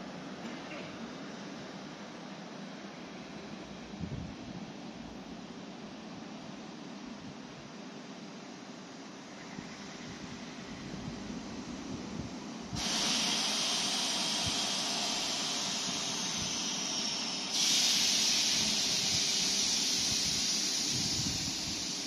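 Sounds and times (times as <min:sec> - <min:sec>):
air venting from train: 0:09.2 - 0:22.0.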